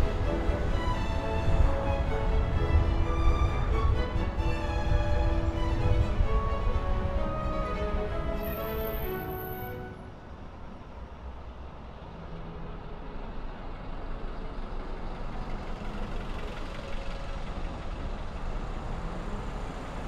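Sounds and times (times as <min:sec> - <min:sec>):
car road rumble and tyre noise: 0:00.0 - 0:20.0.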